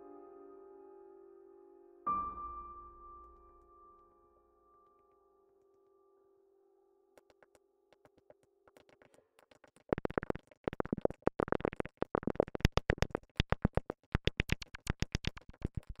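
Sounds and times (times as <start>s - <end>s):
synthesizer music with clicky pulses: 8.0s - 16.0s.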